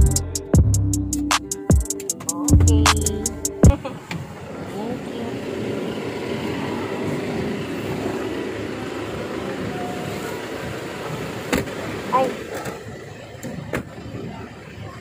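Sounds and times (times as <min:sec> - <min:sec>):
road traffic: 0:00.0 - 0:15.0
faint distant voices: 0:03.7 - 0:15.0.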